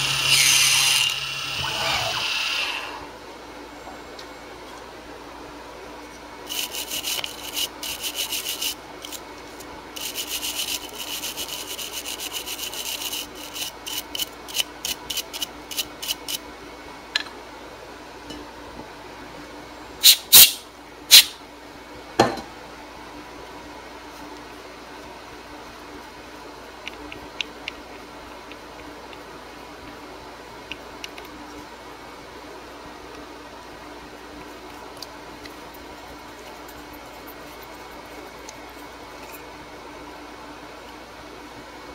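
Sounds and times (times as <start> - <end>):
brush scrubbing metal chips: 6.5 - 9.2, 10.0 - 16.4.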